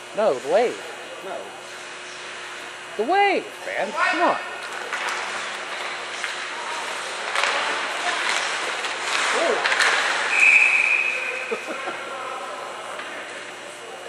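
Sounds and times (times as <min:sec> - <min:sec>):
crowd noise: 0:04.1 - 0:14.0
hockey sticks clacking puck: 0:04.6 - 0:11.5
shrill referee whistle: 0:10.3 - 0:11.3.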